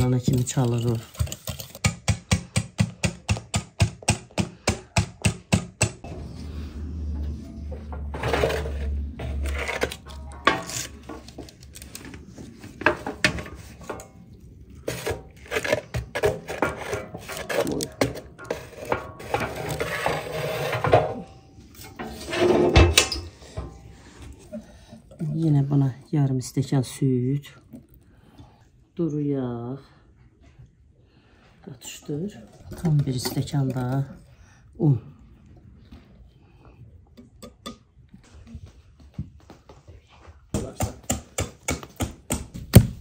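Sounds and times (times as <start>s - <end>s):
baking tray clanking: 16.3s - 23.8s.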